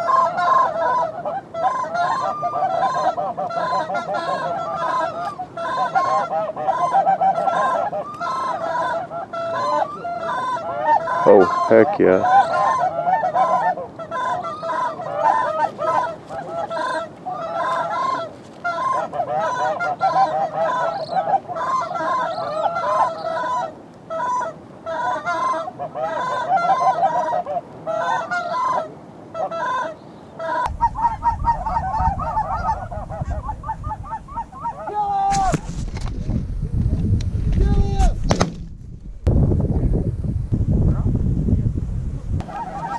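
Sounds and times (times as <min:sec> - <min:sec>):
geese honking and clucking: 0:00.0 - 0:36.3, 0:42.4 - 0:42.9
low rumble: 0:35.9 - 0:42.4.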